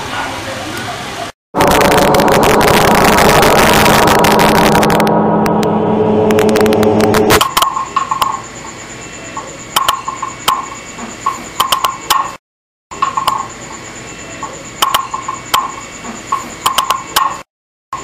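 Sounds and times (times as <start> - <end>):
faint high whine: 1.6 - 11.5
sharp irregular clicks: 9.7 - 10.7, 11.3 - 12.4, 14.8 - 17.4.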